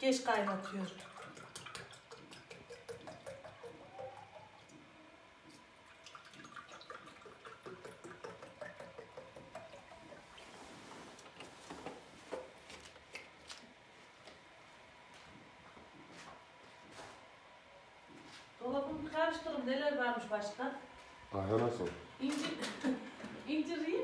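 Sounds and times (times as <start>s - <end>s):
juice pouring into glass: 5.8s - 10.4s.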